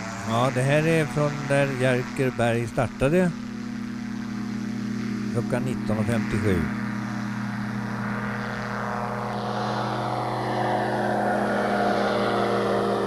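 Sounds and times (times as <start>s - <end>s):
engine and propeller droning: 0.0s - 13.0s.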